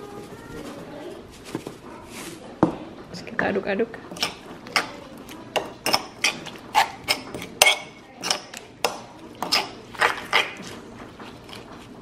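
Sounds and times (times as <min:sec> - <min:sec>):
metal spoon scraping stone mortar: 0:04.1 - 0:11.7.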